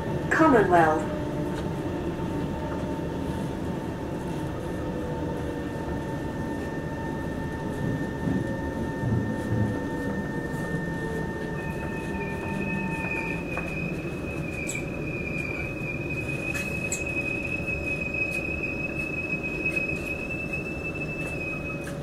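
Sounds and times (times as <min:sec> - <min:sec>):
equipment whining tones: 0:00.0 - 0:22.0
high steady whine: 0:00.0 - 0:22.0
train car hum: 0:00.0 - 0:22.0.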